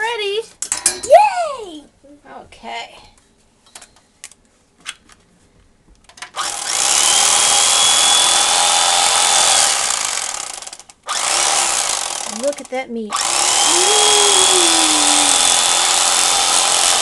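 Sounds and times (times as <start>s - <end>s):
electric carving knife running: 6.4s - 17.0s.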